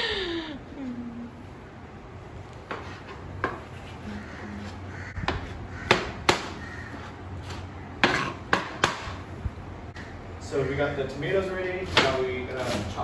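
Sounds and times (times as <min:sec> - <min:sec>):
knife chopping on plastic board: 0:05.2 - 0:09.2.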